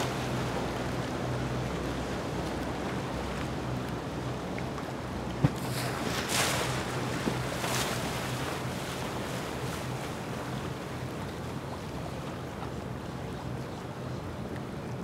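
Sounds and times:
outboard motors humming: 0.0s - 15.0s
water washing along hull: 0.0s - 15.0s.

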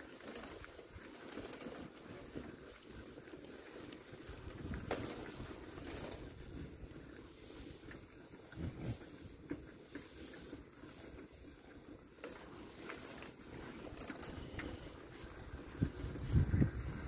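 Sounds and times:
footsteps on paved path: 0.0s - 17.0s
wind buffeting microphone: 4.3s - 9.5s, 14.2s - 17.0s.

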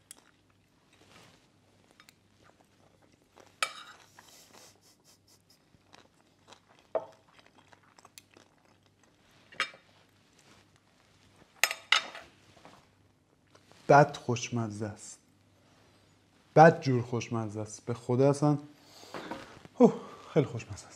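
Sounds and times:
faint eating sounds: 0.0s - 20.9s
cutlery clinking on plate: 3.6s - 4.1s, 11.6s - 12.3s.

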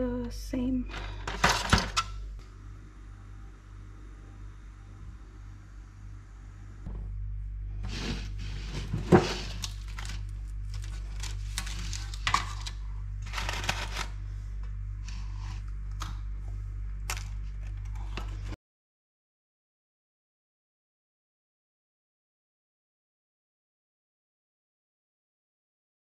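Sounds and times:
steady low hum: 0.0s - 18.6s
paper cups rustling: 7.9s - 14.3s.

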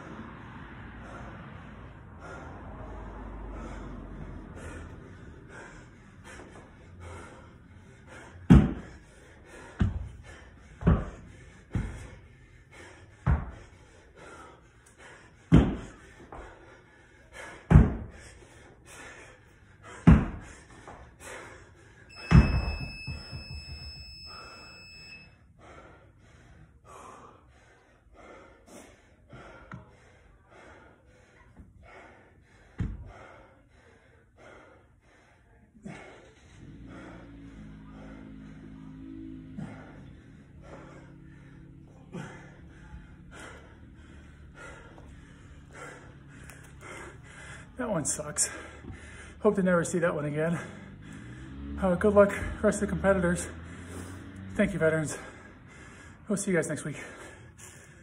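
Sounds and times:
person breathing hard: 0.0s - 23.4s, 24.2s - 49.6s, 50.5s - 51.8s, 53.5s - 54.5s, 55.1s - 56.3s, 56.9s - 58.0s
dumbbell thudding on rubber mat: 8.5s - 8.9s, 20.0s - 20.4s
electronic timer long beep: 22.1s - 25.4s.

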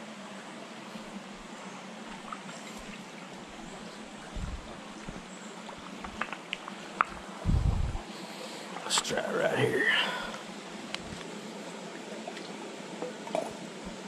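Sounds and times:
creek trickling over stones: 1.0s - 7.3s.

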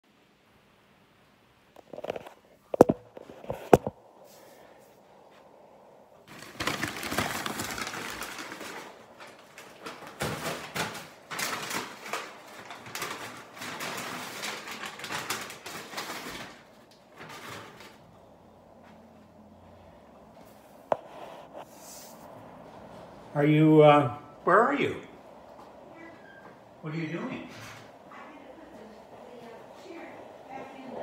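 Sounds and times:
plastic bag rustling: 6.2s - 18.8s.

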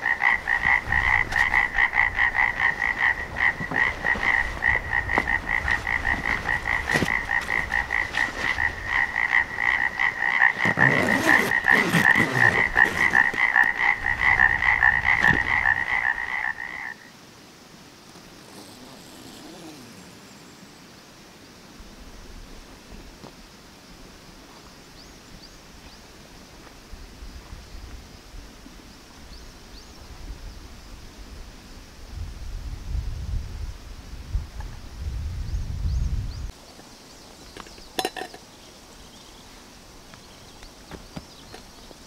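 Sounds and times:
frogs croaking in chorus: 0.0s - 17.2s, 37.6s - 39.3s
faint outdoor ambience: 0.0s - 42.0s
knocks and rustles: 3.3s - 8.7s.

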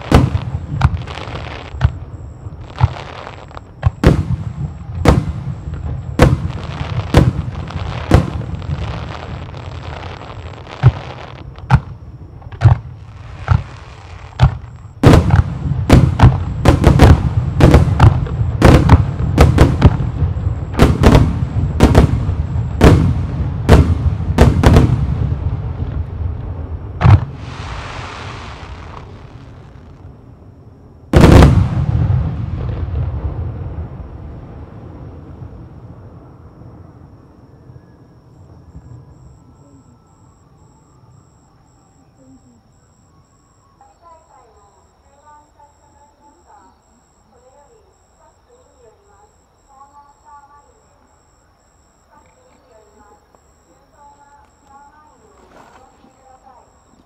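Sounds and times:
fireworks bursting: 0.0s - 30.2s, 31.1s - 37.0s
fireworks hiss: 2.6s - 12.0s, 27.0s - 30.1s.

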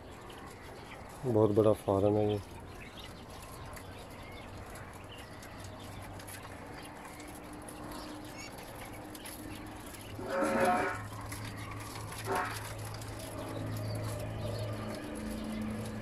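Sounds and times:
faint farmyard background: 0.0s - 16.0s
goat bleating: 10.2s - 11.1s.

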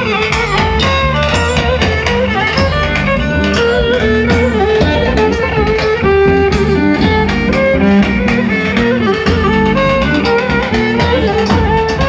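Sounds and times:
lively dance music: 0.0s - 12.0s.

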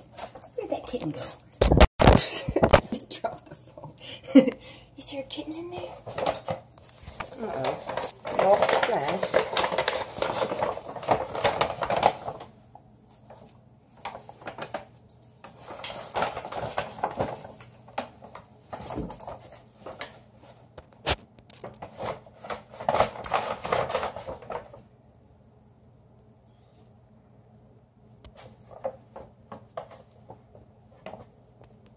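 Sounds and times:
paper bag rustling: 5.2s - 24.9s.

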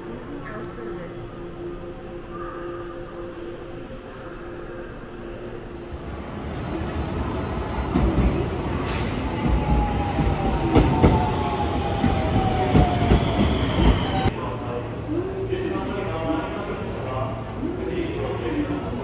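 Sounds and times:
electric train passing: 0.0s - 19.0s
thin train whine: 0.1s - 15.0s.

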